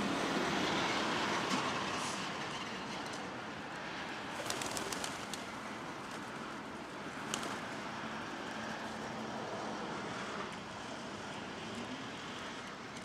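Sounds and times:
traffic noise: 0:00.0 - 0:13.0
pigeon wing claps: 0:04.4 - 0:05.5, 0:07.2 - 0:07.6.

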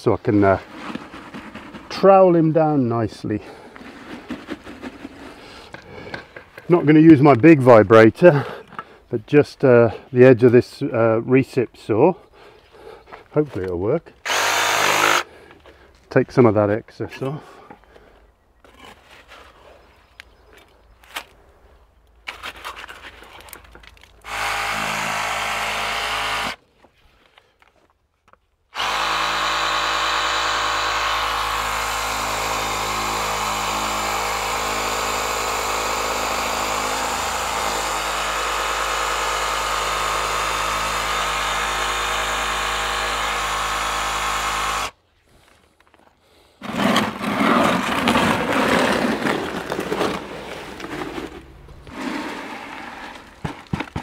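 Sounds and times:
bucket scraping wet concrete: 0:00.3 - 0:02.2, 0:03.3 - 0:06.2, 0:46.6 - 0:54.0
reciprocating saw running against wood: 0:14.2 - 0:15.3, 0:24.2 - 0:26.6, 0:28.8 - 0:45.0.

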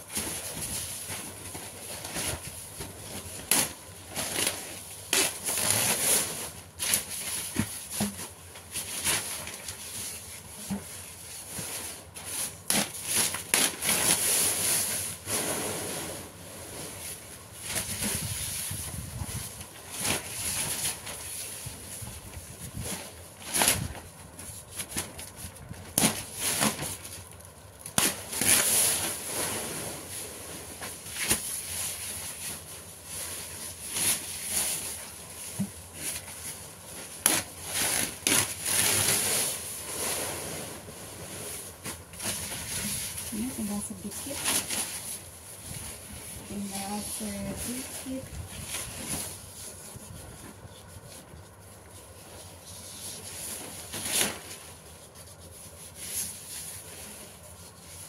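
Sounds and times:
paper rustling and crinkling: 0:00.0 - 0:15.2, 0:16.9 - 0:58.0.

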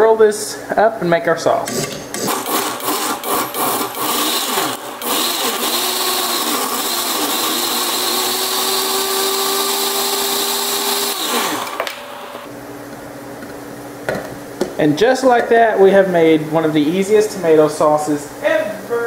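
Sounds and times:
blender motor running: 0:01.7 - 0:12.5.

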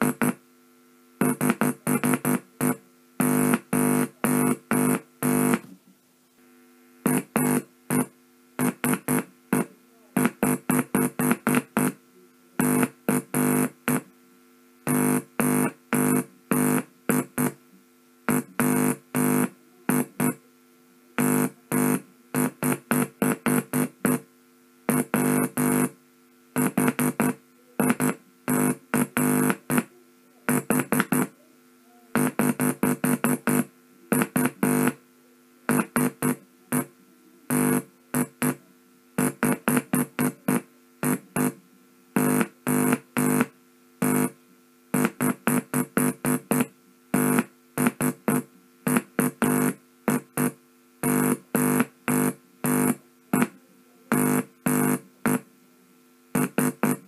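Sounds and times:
morse code tone: 0:56.4 - 0:57.0.

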